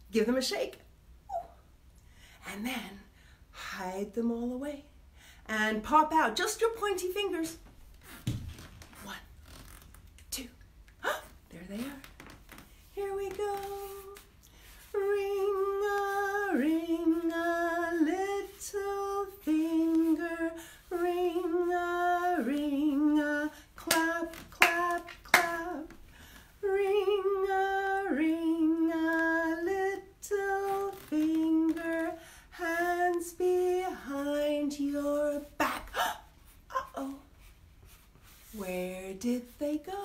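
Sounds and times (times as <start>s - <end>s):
woman singing unaccompanied: 12.8s - 37.3s, 38.5s - 40.0s
hand claps: 23.9s - 25.6s.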